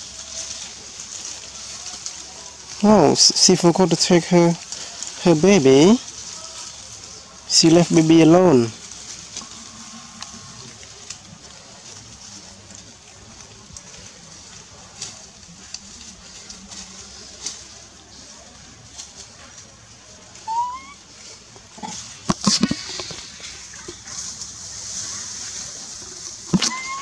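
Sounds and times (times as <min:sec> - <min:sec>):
short rising call: 0:20.4 - 0:21.0.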